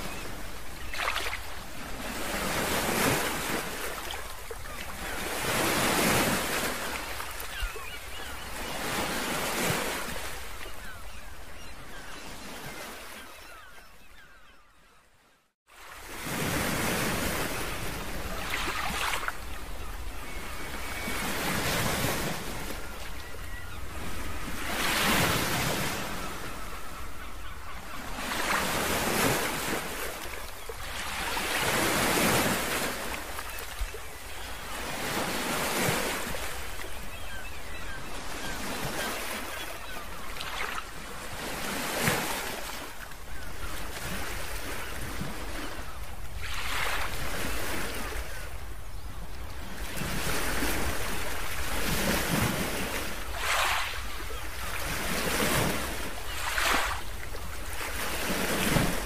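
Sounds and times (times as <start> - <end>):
waves washing in: 0.0 - 11.7.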